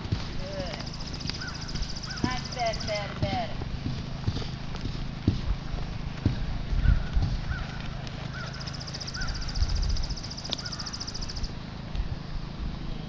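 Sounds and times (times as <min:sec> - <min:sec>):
horse hooves thudding on dirt: 0:00.0 - 0:11.5.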